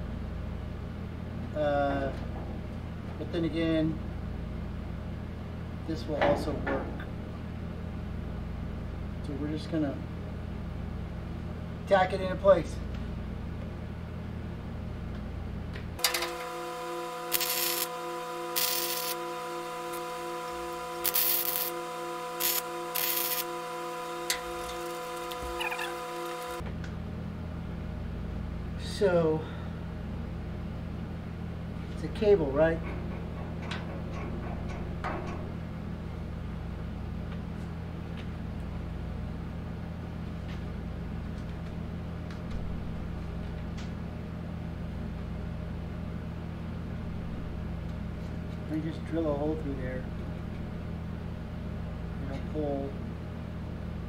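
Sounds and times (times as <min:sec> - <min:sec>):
machine hum: 0:00.0 - 0:54.0
welder arc crackling: 0:16.0 - 0:26.6.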